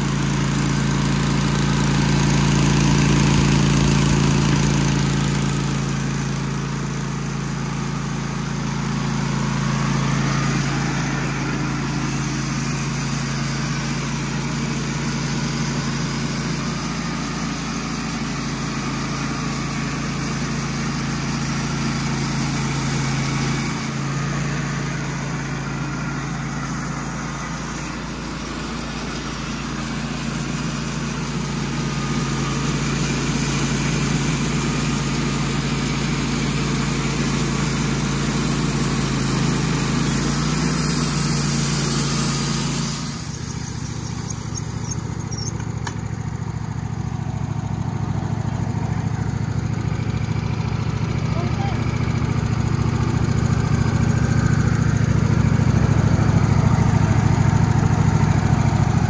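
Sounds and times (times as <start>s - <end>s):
bandsaw mill sawing log: 0.0s - 46.2s, 50.6s - 59.0s.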